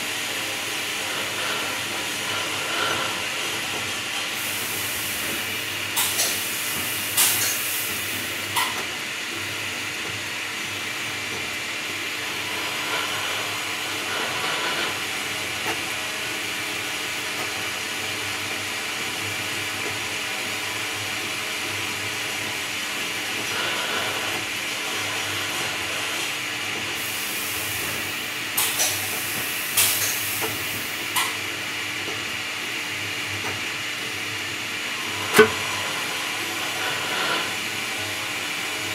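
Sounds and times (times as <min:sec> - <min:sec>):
milling machine spindle hiss: 0:00.8 - 0:08.8, 0:12.2 - 0:15.6, 0:23.3 - 0:38.9.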